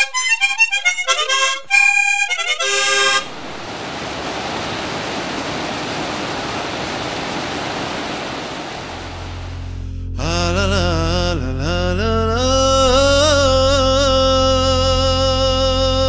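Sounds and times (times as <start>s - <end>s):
harmonica melody: 0.0s - 3.4s, 9.3s - 16.0s
river rushing over rocks: 3.3s - 9.6s.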